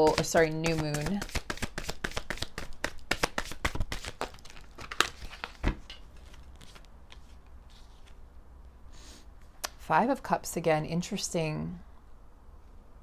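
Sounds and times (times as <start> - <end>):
cards being shuffled: 0.0 - 8.2
faint handling of card deck: 0.1 - 8.3.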